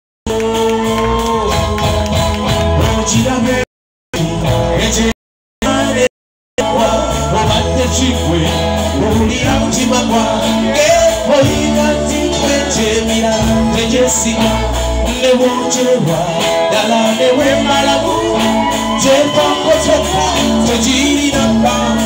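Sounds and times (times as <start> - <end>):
live band playing: 0.3 - 3.6, 4.2 - 22.0
person singing: 0.3 - 22.0
low bass line: 4.2 - 22.0.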